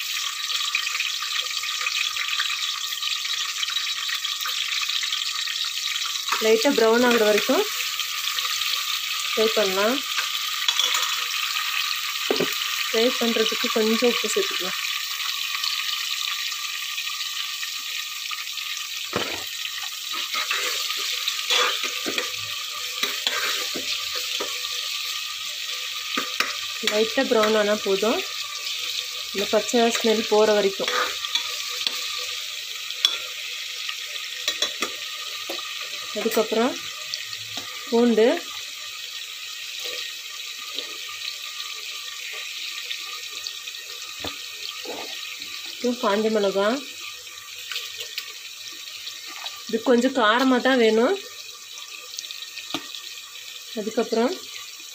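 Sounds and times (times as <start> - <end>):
onions sizzling in oil: 0.0 - 54.9
spoon scraping metal pot: 20.1 - 24.6, 30.8 - 32.1.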